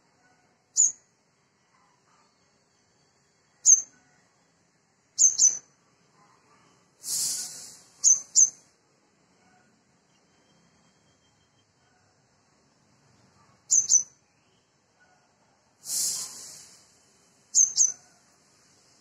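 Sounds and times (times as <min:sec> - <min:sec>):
bird chip calls: 0:03.6 - 0:03.9, 0:05.2 - 0:05.6, 0:07.2 - 0:08.6, 0:13.7 - 0:14.1, 0:17.6 - 0:18.1
harsh hissing burst: 0:07.0 - 0:08.4, 0:15.8 - 0:17.5.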